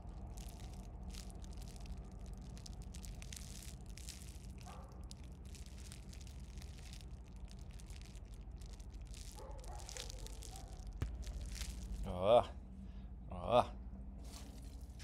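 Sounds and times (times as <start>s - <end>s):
kittens rustling in leaves: 0.0s - 12.2s, 14.2s - 15.0s
light crackles: 0.0s - 12.8s, 14.2s - 15.0s
low background hum: 0.0s - 15.0s.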